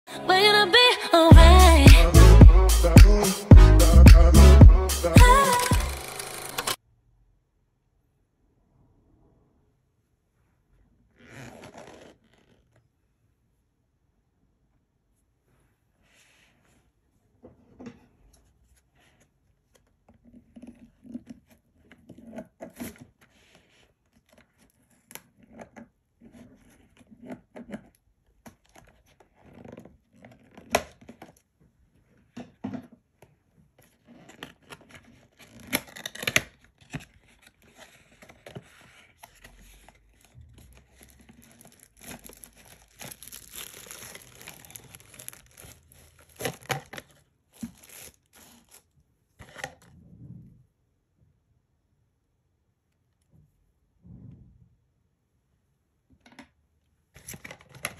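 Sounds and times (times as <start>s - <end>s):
cardboard box being opened: 33.9s - 48.8s
plastic wrap crinkling: 34.4s - 49.0s
box seal tearing: 40.9s - 48.8s.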